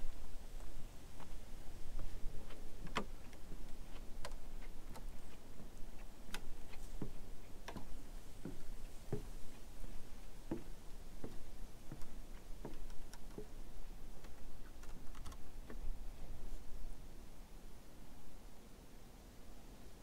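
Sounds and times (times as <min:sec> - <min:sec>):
footsteps on wooden planks: 0:00.6 - 0:14.4.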